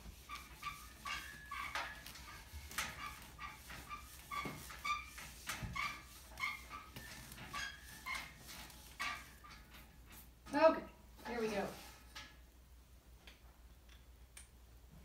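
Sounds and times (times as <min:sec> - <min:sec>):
eraser brushing strokes: 0:00.0 - 0:09.4
eraser squeaking on whiteboard: 0:00.1 - 0:09.5.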